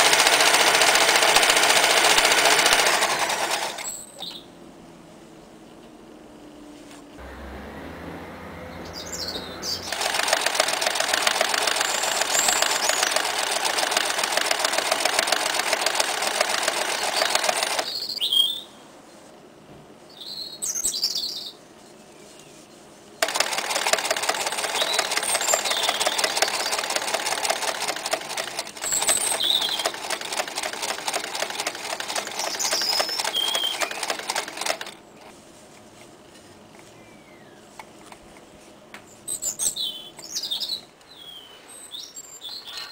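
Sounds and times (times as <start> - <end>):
sewing machine stitching: 0.0 - 4.1, 9.9 - 17.9, 23.2 - 35.0
birds chirping faintly: 3.6 - 4.7, 5.3 - 19.3, 20.0 - 42.9.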